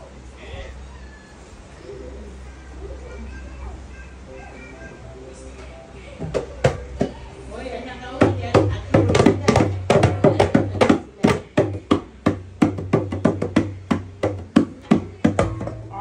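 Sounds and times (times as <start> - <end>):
low steady hum: 0.0 - 16.0
drum struck rapidly: 6.3 - 7.2, 8.2 - 16.0.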